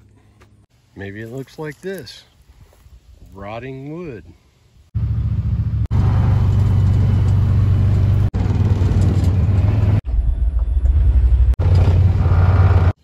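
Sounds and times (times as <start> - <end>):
utility vehicle engine humming: 5.0 - 13.0.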